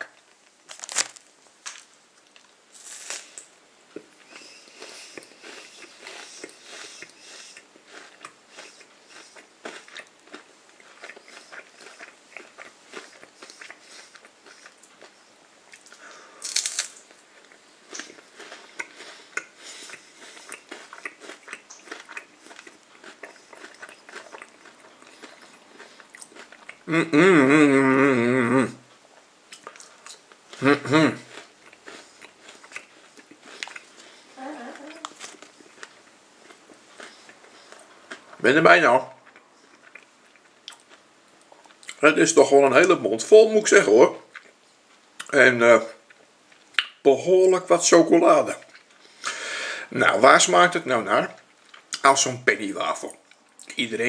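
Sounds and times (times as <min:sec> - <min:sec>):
person chewing crunchy wafer: 0:00.0 - 0:28.1, 0:29.5 - 0:38.4, 0:39.1 - 0:42.0, 0:44.3 - 0:45.4
person speaking: 0:26.9 - 0:28.8, 0:30.6 - 0:31.3, 0:34.4 - 0:35.2.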